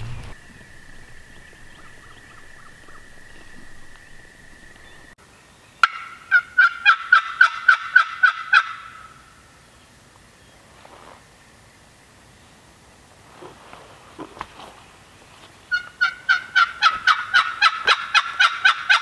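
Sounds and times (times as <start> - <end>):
turkey call hen yelps: 5.8 - 9.2, 15.7 - 19.0.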